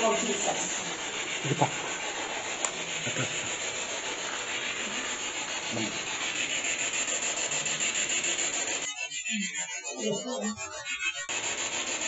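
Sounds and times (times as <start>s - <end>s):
loud steady hiss: 0.0s - 8.8s.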